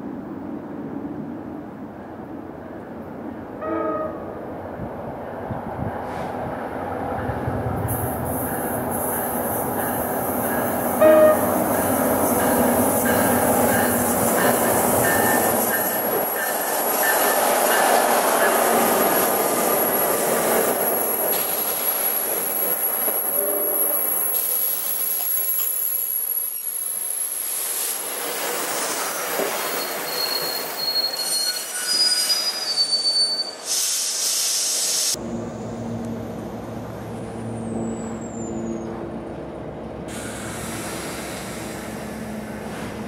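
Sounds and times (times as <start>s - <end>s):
rail noise rushing: 0.0s - 43.0s
train wheels squealing: 8.0s - 27.5s, 28.3s - 35.9s, 37.4s - 39.0s.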